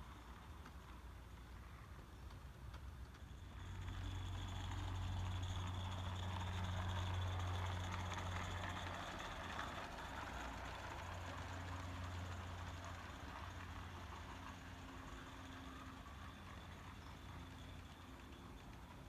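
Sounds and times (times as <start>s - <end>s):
low train rumble: 0.0s - 19.0s.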